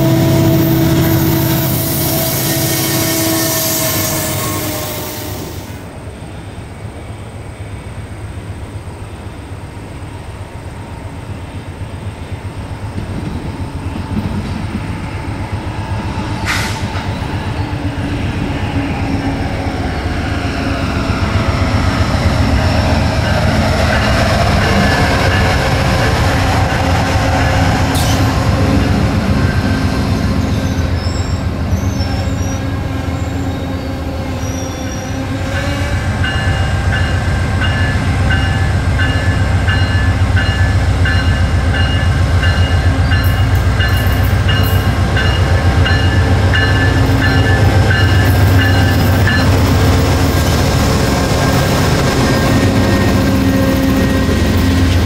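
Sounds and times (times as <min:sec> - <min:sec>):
locomotive bell ringing: 0:00.0 - 0:03.4, 0:22.5 - 0:26.0, 0:35.6 - 0:49.9
diesel locomotive engine rumble: 0:00.0 - 0:55.0
train wheels on rails: 0:00.0 - 0:55.0.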